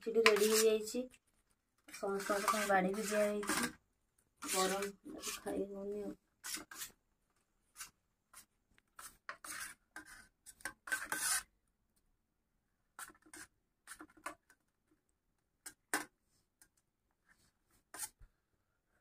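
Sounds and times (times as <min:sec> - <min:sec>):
steel spoon scraping a plate: 0:00.2 - 0:00.7, 0:01.9 - 0:03.8, 0:04.4 - 0:05.5, 0:09.0 - 0:11.5.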